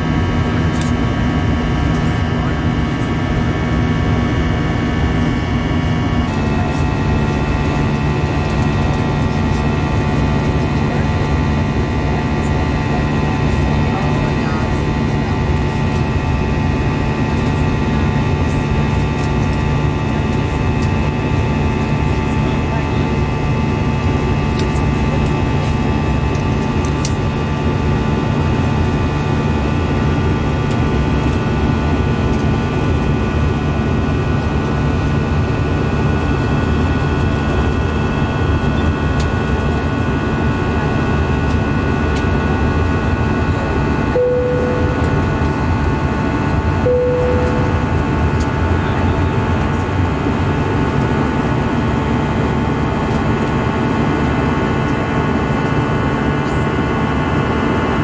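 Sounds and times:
jet engine drone: 0.0 - 58.0
steady hums: 0.0 - 58.0
short cabin tones: 44.1 - 49.9.

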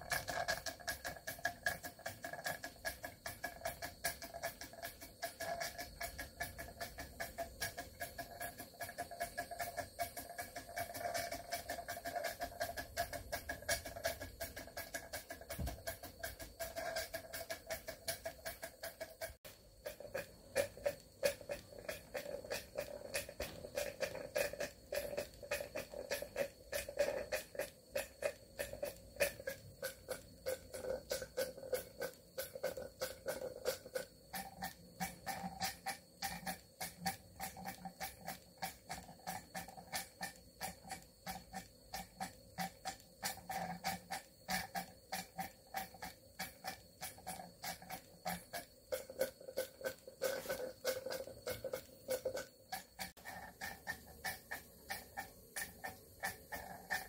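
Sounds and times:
steam engine ticking beat: 0.0 - 57.0.

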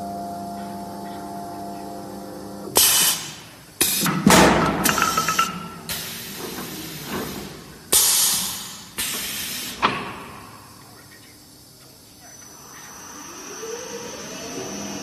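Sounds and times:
compressed air hissing: 2.8 - 4.2, 5.8 - 9.9.

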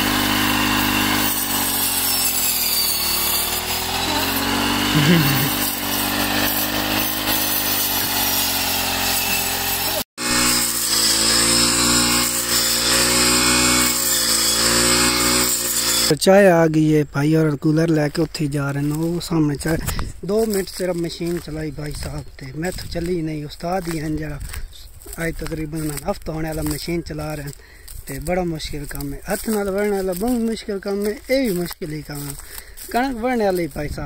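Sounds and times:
small petrol engine running: 0.0 - 16.1.

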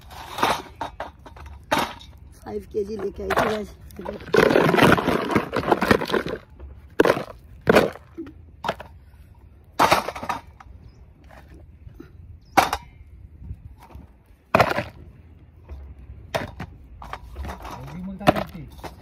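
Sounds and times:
dry clay crumbling and snapping: 0.7 - 9.8.

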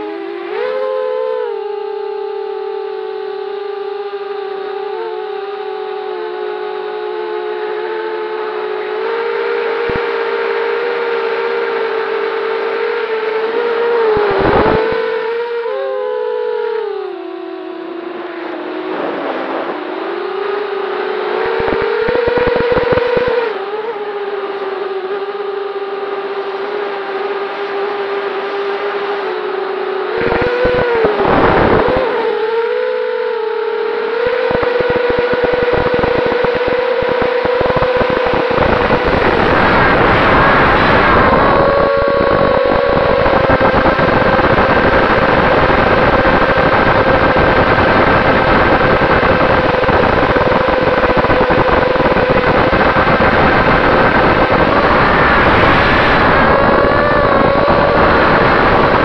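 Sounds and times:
drone motors whining: 0.0 - 59.0
low rumble and crackle: 18.8 - 23.8, 30.1 - 32.4, 34.2 - 59.0.

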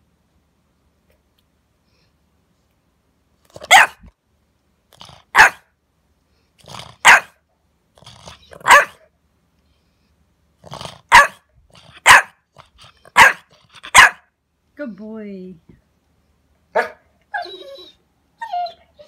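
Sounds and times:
puppy barking: 3.6 - 4.1, 5.3 - 5.7, 7.0 - 7.4, 8.4 - 9.1, 11.1 - 12.4, 13.0 - 14.3, 16.7 - 17.1
puppy grumbling: 4.9 - 5.4, 6.6 - 7.1, 8.0 - 8.7, 10.6 - 13.9.

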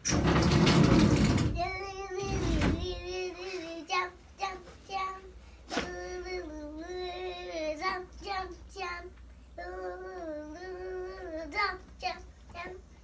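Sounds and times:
girl singing: 1.5 - 13.0.

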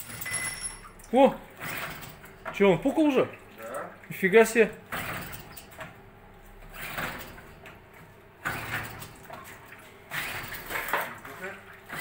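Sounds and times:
outboard engine cranking: 1.5 - 2.7.

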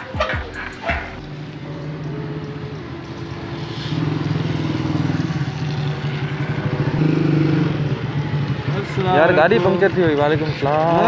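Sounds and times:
motorcycle engine approaching: 0.0 - 11.0.

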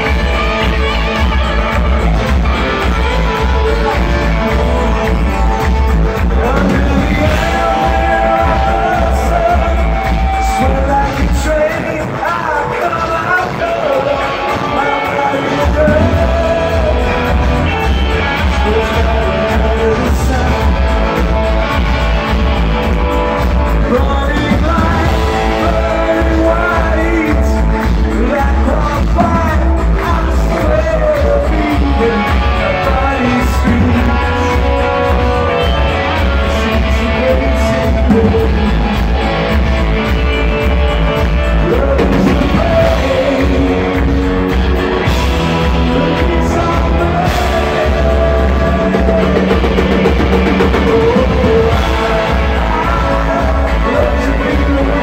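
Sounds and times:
lead singer singing: 0.0 - 55.0
live rock band playing: 0.0 - 55.0.

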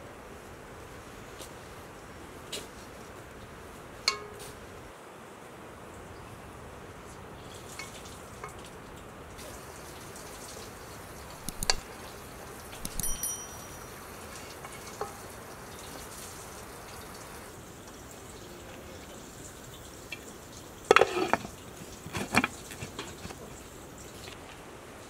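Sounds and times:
steady hiss: 0.0 - 25.0
metal pot and utensils clinking: 4.1 - 4.6, 12.8 - 15.3, 20.9 - 23.5
ringing metallic clatter: 12.8 - 15.2.

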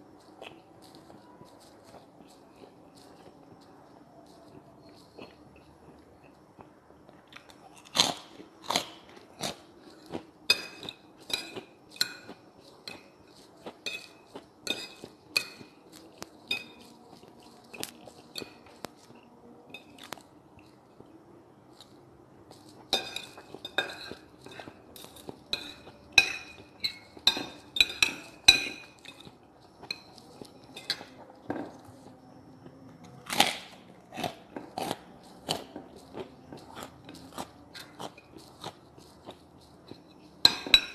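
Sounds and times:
chewing and crunching food: 0.0 - 40.9
cutlery clinking on plate: 10.5 - 18.8, 22.9 - 31.8, 39.8 - 40.9.

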